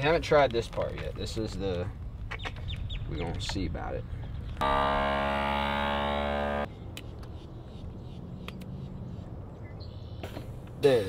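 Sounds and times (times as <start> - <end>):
vacuum sealer pump humming: 4.6 - 6.7.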